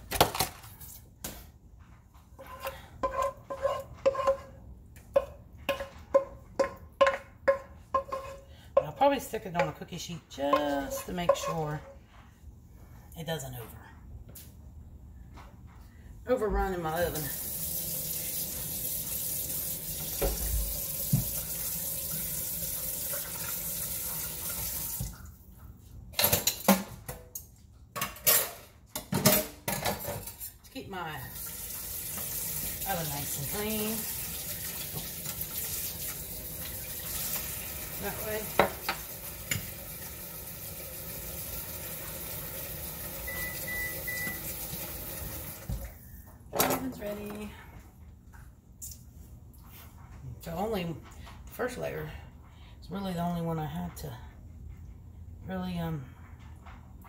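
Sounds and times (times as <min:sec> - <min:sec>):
wooden spoon knocking on a pot: 0:05.1 - 0:09.0
faucet running into sink: 0:17.1 - 0:25.2, 0:31.3 - 0:45.9.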